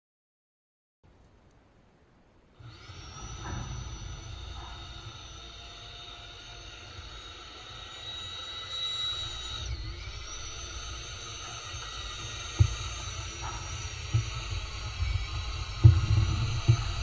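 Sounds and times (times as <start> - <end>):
electric tiller motor whine: 2.6 - 17.0
low rumble: 9.1 - 17.0.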